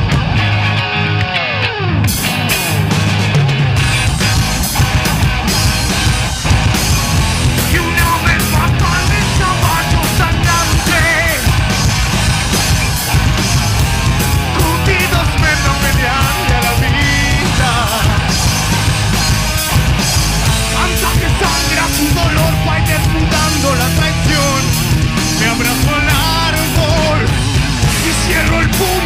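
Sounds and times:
bass: 0.0s - 29.0s
distorted electric guitars: 0.0s - 29.0s
drums: 0.0s - 29.0s.

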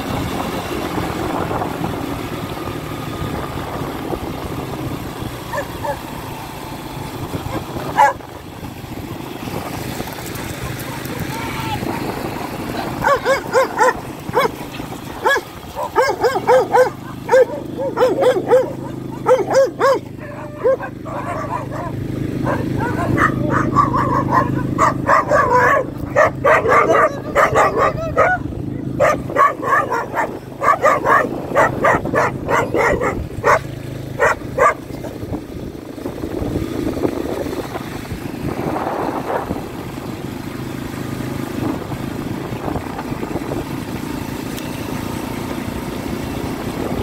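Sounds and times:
atv engine running: 0.0s - 47.0s
dog barking fast: 5.5s - 6.1s, 7.5s - 8.3s, 12.8s - 14.6s, 15.2s - 35.2s
tyre and wind noise: 7.0s - 44.4s.

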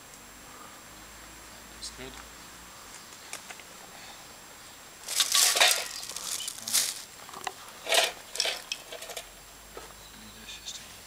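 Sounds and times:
plastic bag rustling and crinkling: 5.0s - 9.2s.

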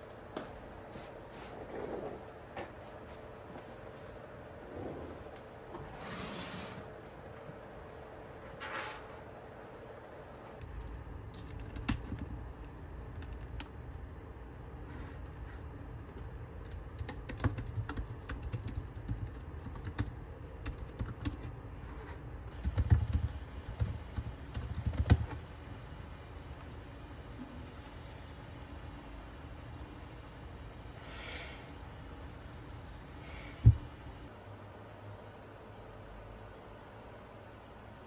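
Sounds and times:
laptop keyboard typing: 10.6s - 13.9s, 16.6s - 21.6s, 22.5s - 25.4s.

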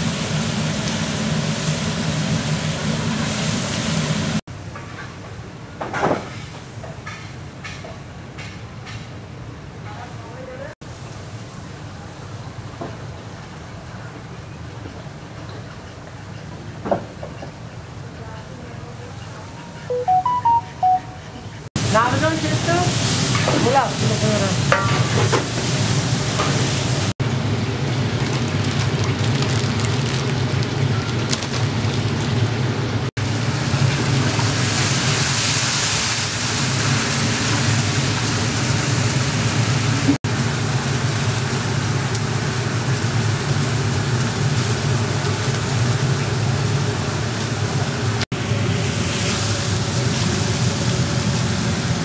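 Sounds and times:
food sizzling in a pot: 0.0s - 4.4s, 21.8s - 30.6s, 33.2s - 52.0s
low rumble of fire: 22.9s - 52.0s.

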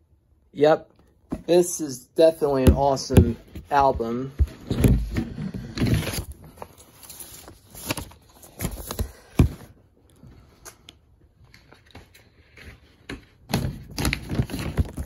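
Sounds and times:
record sleeve handling noise: 2.9s - 9.8s.

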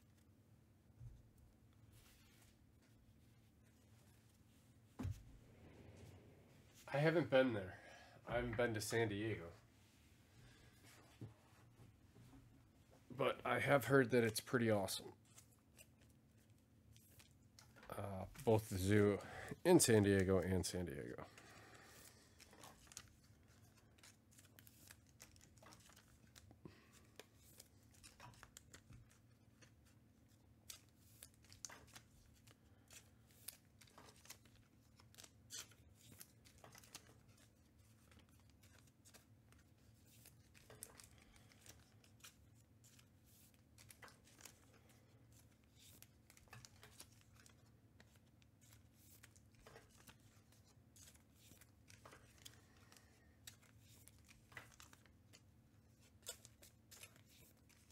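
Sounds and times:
trading cards and wrappers rustling: 13.6s - 57.9s.

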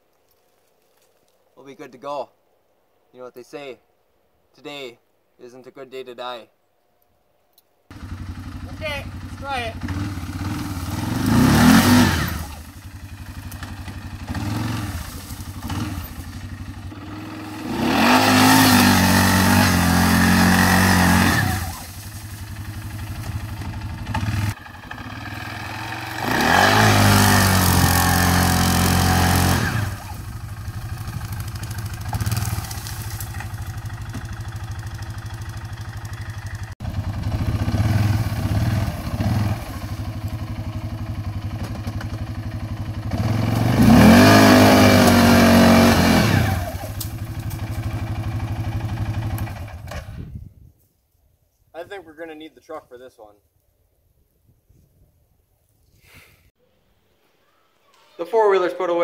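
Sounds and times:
quad bike engine revving: 7.9s - 50.3s.

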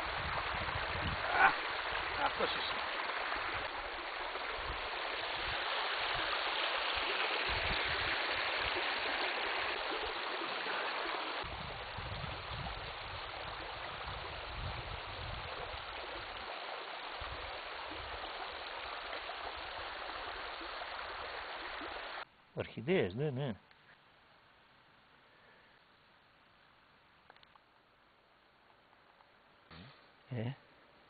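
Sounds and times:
stream water rushing over rocks: 0.0s - 22.3s.

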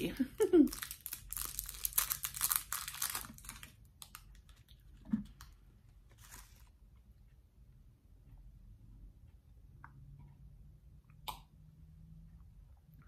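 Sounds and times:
wrapper crinkling and tearing: 0.7s - 4.8s.

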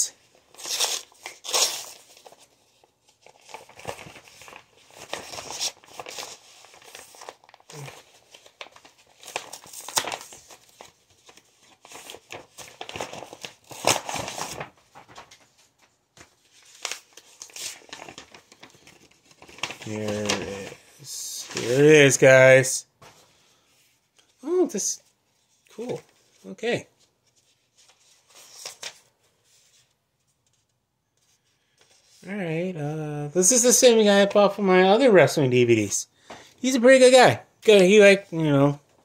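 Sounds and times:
paper tearing and crinkling: 0.0s - 15.5s, 16.2s - 22.6s.

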